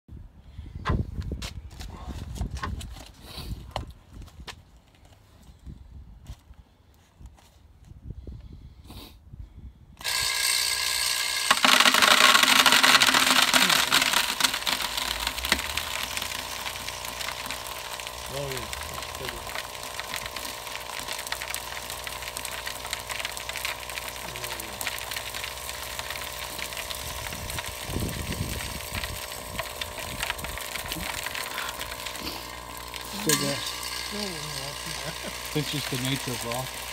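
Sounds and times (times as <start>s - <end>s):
vibratory hopper humming: 10.0s - 36.9s
crushed ore clattering into bucket: 11.5s - 33.7s.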